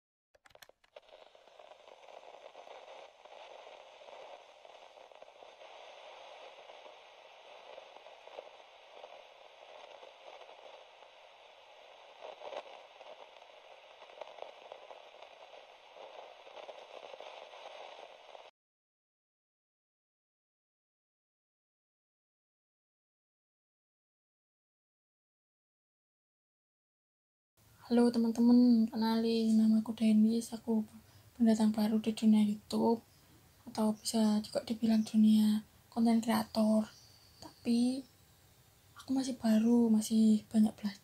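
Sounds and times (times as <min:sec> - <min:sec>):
static hiss with crackle: 0:00.4 - 0:18.5, 0:27.6 - 0:41.0.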